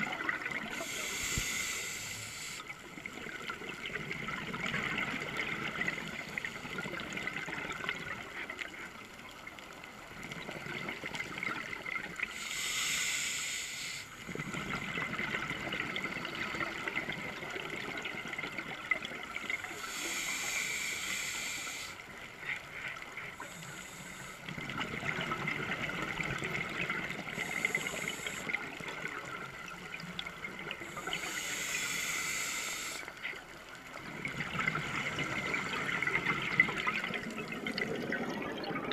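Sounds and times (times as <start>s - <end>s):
regulator hissing on inhale: 0.5s - 3.0s, 12.2s - 14.6s, 19.4s - 22.2s, 23.4s - 24.6s, 26.9s - 29.2s, 30.0s - 33.4s.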